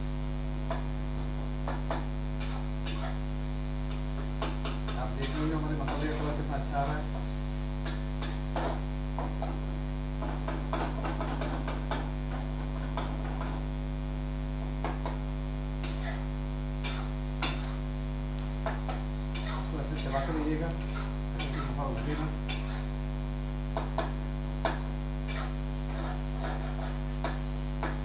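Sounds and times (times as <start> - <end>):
electrical hum: 0.0 - 28.0
wooden spatula scraping a pan: 4.5 - 8.8, 16.9 - 17.9, 18.6 - 23.0, 25.3 - 28.0.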